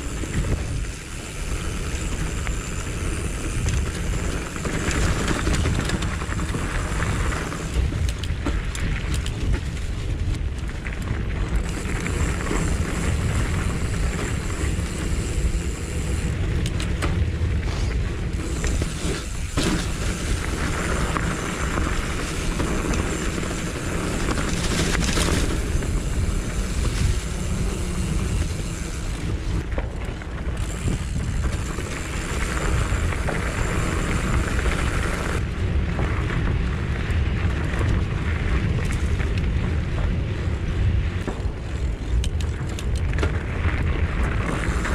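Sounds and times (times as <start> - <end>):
bike clicks and rattles: 0.0 - 44.9
bike tyre noise: 0.0 - 44.9
wind rumbling over microphone: 0.0 - 44.9.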